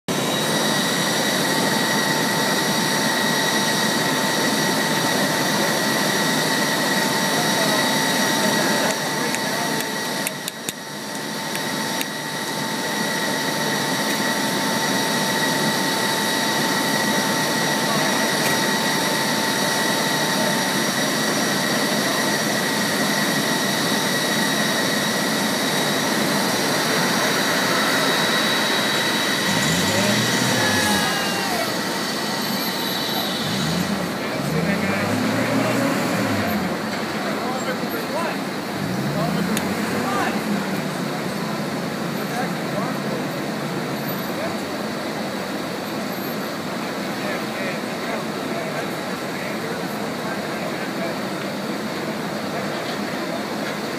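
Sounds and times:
high whining tones: 0:00.1 - 0:42.7.

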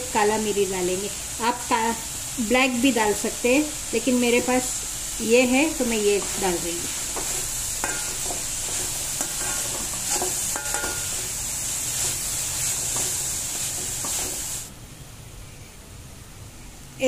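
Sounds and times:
food sizzling: 0:00.0 - 0:14.7
metal spatula scraping a wok: 0:06.1 - 0:14.7
steel clinking on pan: 0:07.2 - 0:08.4, 0:09.2 - 0:11.3.

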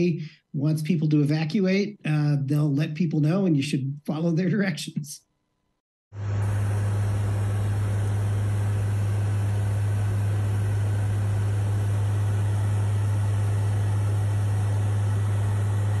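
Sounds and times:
aircraft cabin drone: 0:06.2 - 0:16.0.

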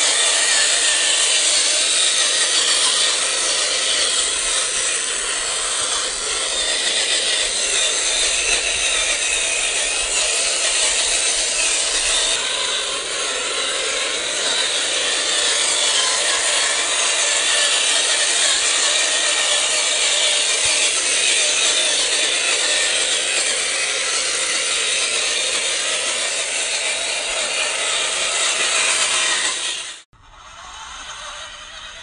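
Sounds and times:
toy electric motor grinding: 0:00.0 - 0:32.0.

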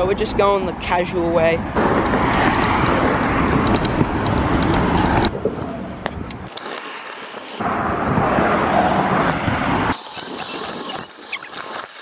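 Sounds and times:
scooter wheels on rough asphalt: 0:01.4 - 0:07.7, 0:09.2 - 0:12.0.

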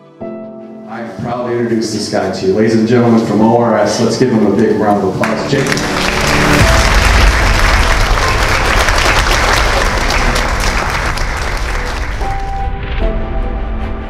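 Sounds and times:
music: 0:00.0 - 0:14.0
large audience applauding: 0:05.2 - 0:12.6.

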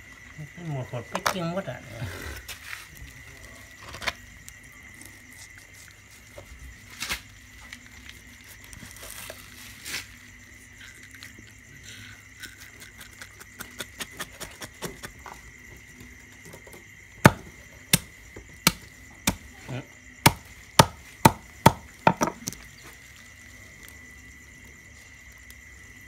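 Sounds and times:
high insect chirring: 0:00.0 - 0:26.0
knife chopping on wooden board: 0:17.2 - 0:19.4, 0:20.3 - 0:22.4.

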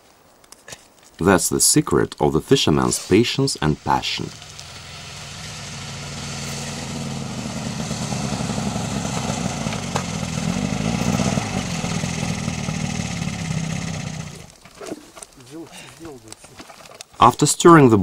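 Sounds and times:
snowmobile engine running: 0:02.8 - 0:14.5.

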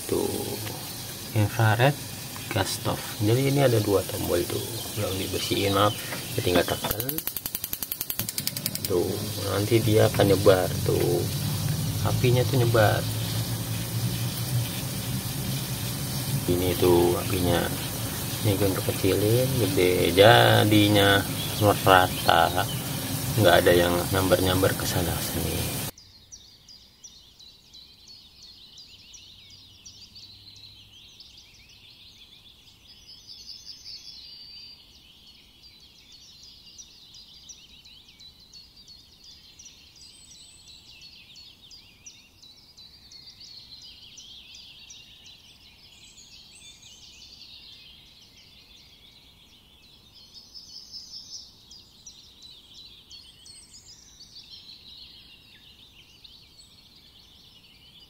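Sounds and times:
small animals chirping: 0:00.0 - 0:25.9.

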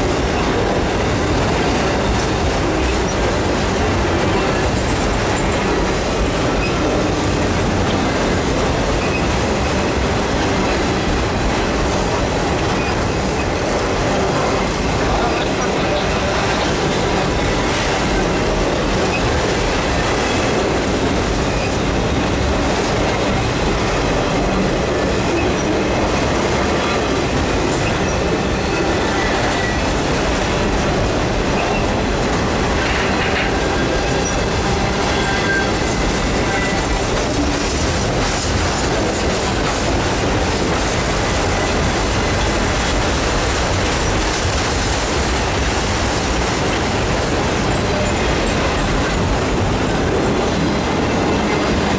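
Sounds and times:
freight train wheels rumbling: 0:00.0 - 0:51.9
wheel squeals: 0:06.3 - 0:07.0, 0:09.0 - 0:09.3, 0:12.7 - 0:13.5, 0:32.8 - 0:37.7.

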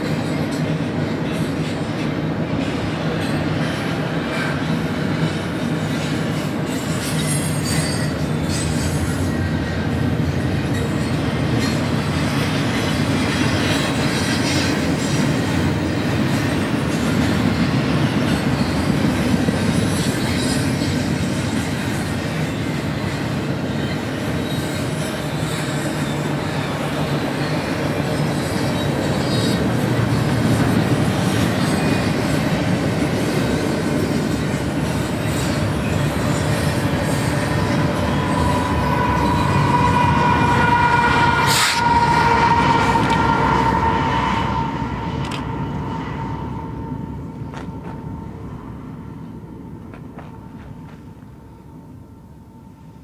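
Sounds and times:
steel wheels rumbling on rail: 0:00.0 - 0:53.0
high wheel squeal: 0:05.2 - 0:09.8, 0:19.7 - 0:33.3, 0:34.1 - 0:48.7.

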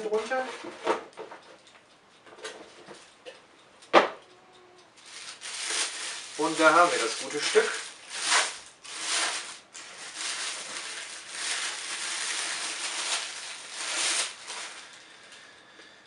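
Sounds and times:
plastic bag crinkling: 0:05.0 - 0:15.2.

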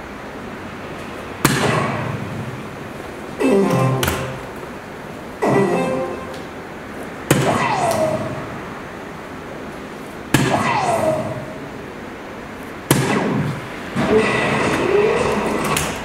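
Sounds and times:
darts hitting dartboard: 0:01.4 - 0:02.1, 0:03.7 - 0:04.5, 0:07.3 - 0:08.4, 0:12.9 - 0:13.6
falling tone sound effect: 0:03.4 - 0:04.5, 0:05.4 - 0:06.4.

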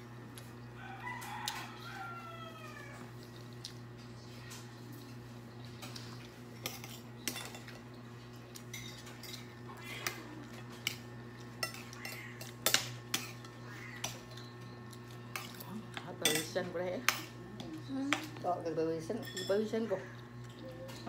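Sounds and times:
steady low hum: 0:00.0 - 0:21.0
spoons clinking on glass bowls: 0:06.6 - 0:07.8, 0:11.6 - 0:17.3, 0:19.1 - 0:19.8.

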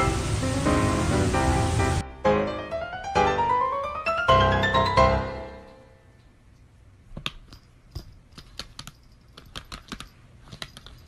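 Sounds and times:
laptop keyboard typing: 0:07.2 - 0:11.0.

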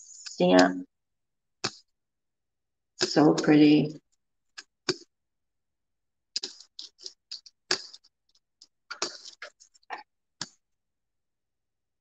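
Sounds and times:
brayer rolling through wet paint: 0:06.3 - 0:10.7.

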